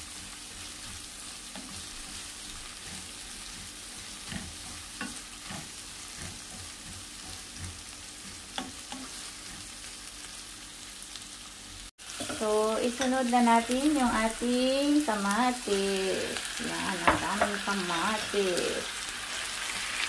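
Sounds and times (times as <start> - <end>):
vegetables sizzling in oil: 0.0 - 20.0
spatula knocking and scraping pan: 0.6 - 9.7, 16.8 - 18.3.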